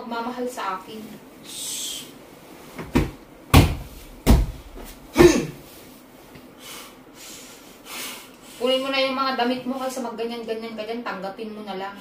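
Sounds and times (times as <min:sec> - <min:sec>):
dull thumps: 0:02.8 - 0:05.5.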